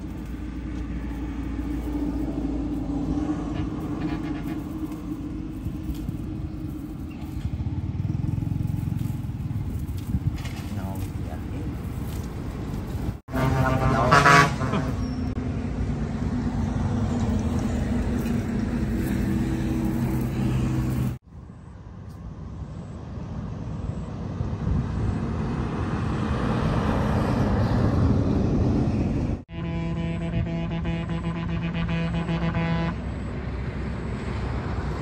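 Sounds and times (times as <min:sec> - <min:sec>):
engine hum: 0:00.0 - 0:35.0
rushing traffic noise: 0:00.0 - 0:35.0
vehicle horn toot: 0:13.3 - 0:15.3, 0:29.5 - 0:33.0.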